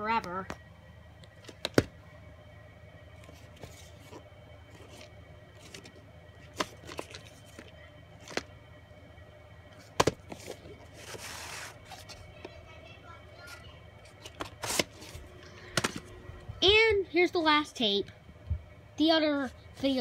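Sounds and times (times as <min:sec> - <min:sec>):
sliding rustle: 0:10.3 - 0:12.2.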